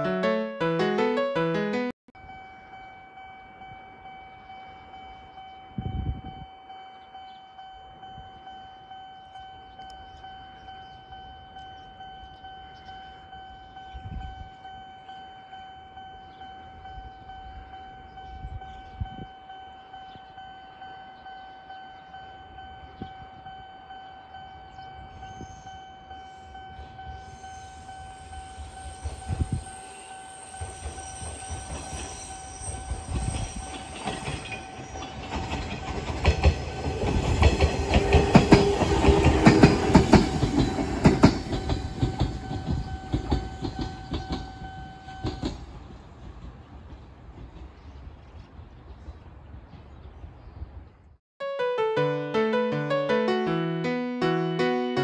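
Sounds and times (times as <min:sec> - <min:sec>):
level crossing warning bell ringing: 0:00.0 - 0:35.8, 0:36.4 - 0:45.5
train rumbling past: 0:21.7 - 0:50.4
wheels clacking over rail joints: 0:33.8 - 0:48.2.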